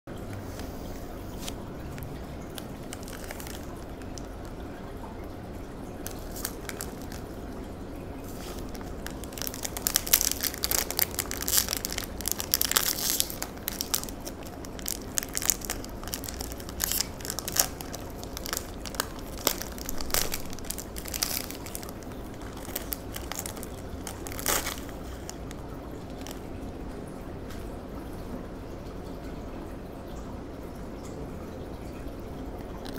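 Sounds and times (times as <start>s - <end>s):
plastic wrapper crinkling and tearing: 0.6s - 4.9s, 5.9s - 7.6s, 8.2s - 26.5s.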